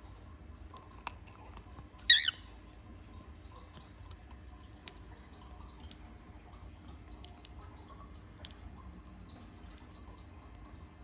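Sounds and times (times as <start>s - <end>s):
cockatiel squawk: 2.1s - 2.4s.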